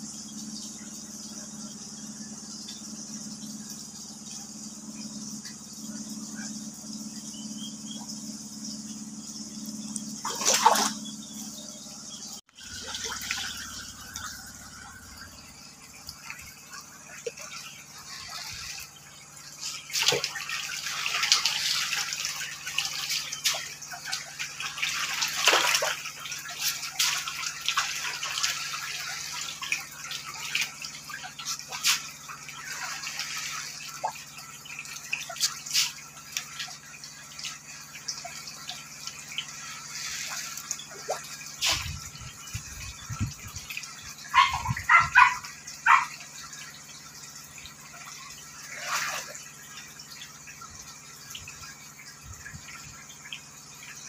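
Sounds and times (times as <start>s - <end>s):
fish splashing in water: 10.1s - 11.5s, 12.6s - 53.8s.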